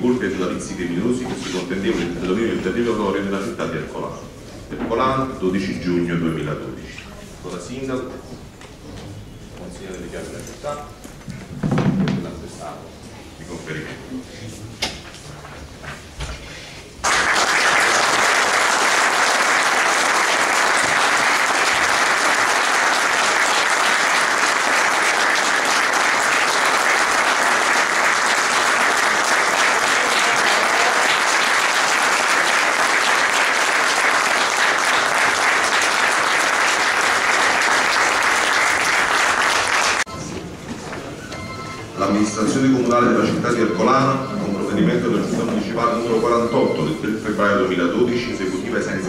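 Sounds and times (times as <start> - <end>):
roomful of people applauding: 17.0 - 40.3.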